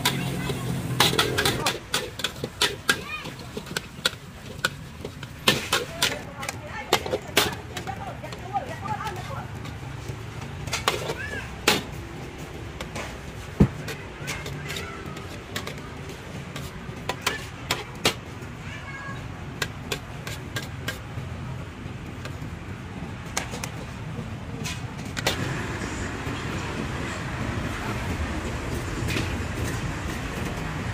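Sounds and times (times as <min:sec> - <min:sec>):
metal ladle scraping a wok: 0:00.0 - 0:06.2.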